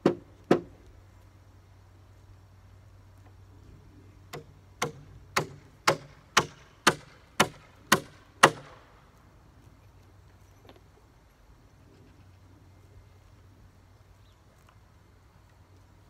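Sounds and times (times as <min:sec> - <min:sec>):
hammer driving nail into wood: 0:04.3 - 0:08.8.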